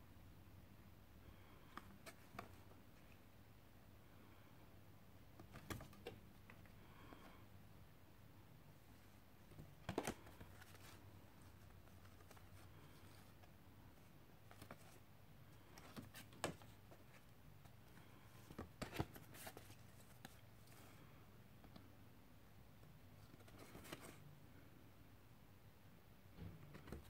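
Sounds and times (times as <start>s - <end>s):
faint steady hum: 0.0s - 27.0s
postcards rustling and tapping: 9.5s - 13.5s, 15.6s - 20.8s.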